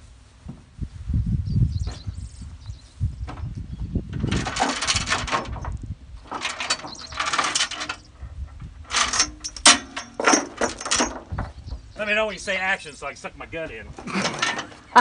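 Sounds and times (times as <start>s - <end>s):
steel chain rattling: 4.2s - 8.1s, 8.8s - 11.5s.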